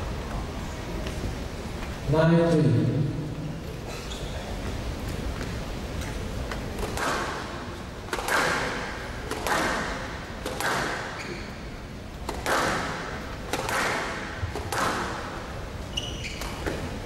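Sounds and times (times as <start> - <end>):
squash ball smacks echoing: 6.8 - 11.2, 12.2 - 15.5.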